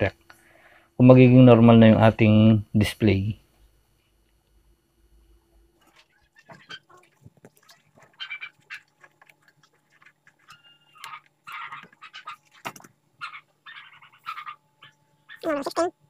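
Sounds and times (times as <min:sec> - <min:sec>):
faint animal calls: 0:05.9 - 0:15.9.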